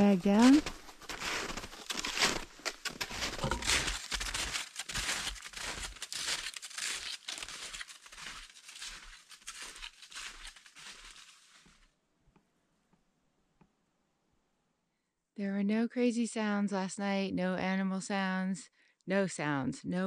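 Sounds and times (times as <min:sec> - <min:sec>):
footsteps crunching on snow: 0:00.0 - 0:11.9.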